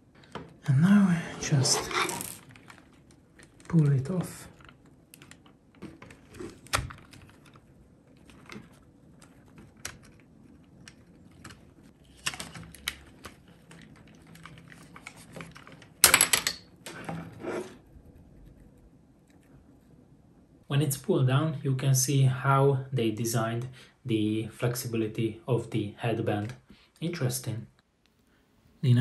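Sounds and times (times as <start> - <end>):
plastic clattering: 1.8 - 17.2.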